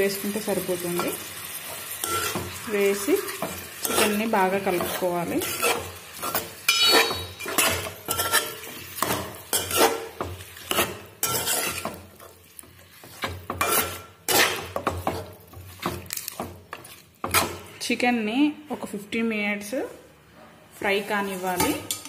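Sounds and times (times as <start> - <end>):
metal spatula scraping a pot: 1.0 - 17.8.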